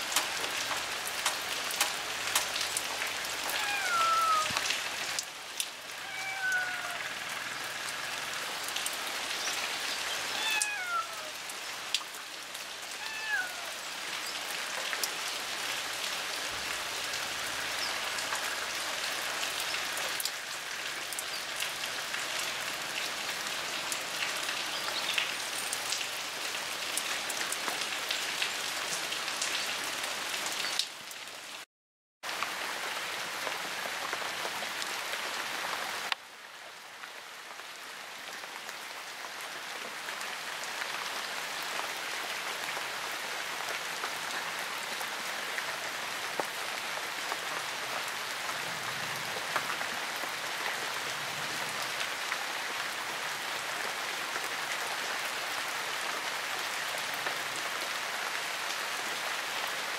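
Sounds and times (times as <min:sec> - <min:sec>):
rain falling on leaves: 0:00.0 - 0:59.9
short falling cries: 0:03.5 - 0:04.6, 0:06.0 - 0:07.0, 0:10.4 - 0:11.4.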